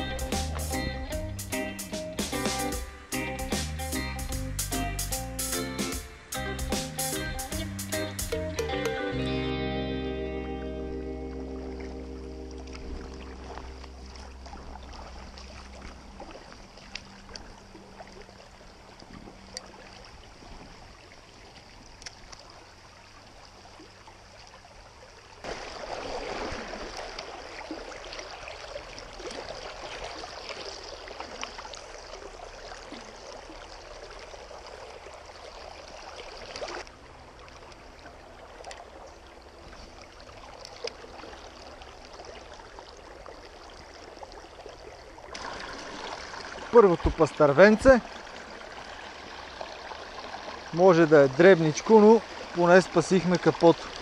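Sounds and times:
river water running over stones: 11.0 - 54.0.

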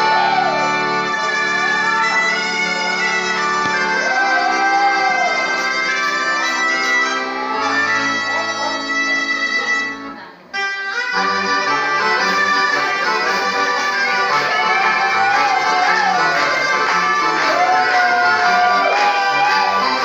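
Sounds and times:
folk dance music on accordion: 0.0 - 20.0.

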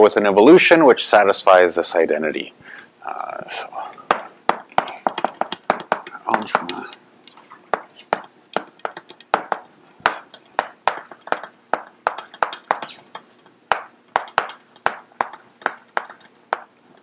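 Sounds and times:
chalk tapping and scraping on blackboard: 4.1 - 6.9, 7.7 - 16.8.

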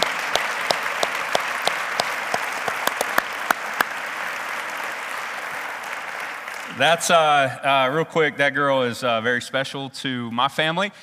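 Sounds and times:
sharp single claps: 0.0 - 3.9
crowd applauding: 0.0 - 7.5.

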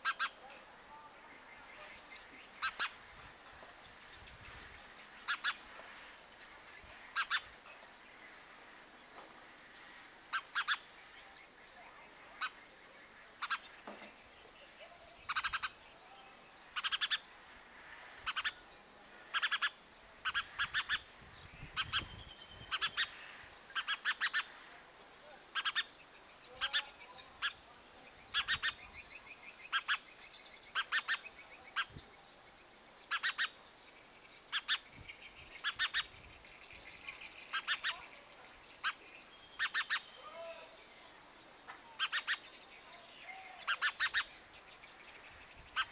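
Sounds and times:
other birds twittering: 0.0 - 45.9
sparrow chirping: 0.0 - 45.9.

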